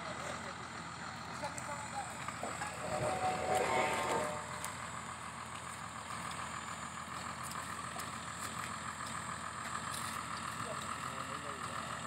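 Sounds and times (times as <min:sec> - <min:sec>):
drilling rig engine running: 0:00.0 - 0:12.0.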